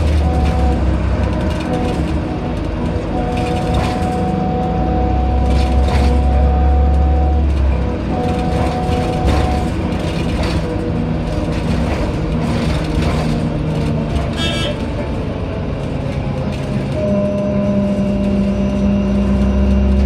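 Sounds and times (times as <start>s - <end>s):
bus engine rumble: 0.0s - 20.0s.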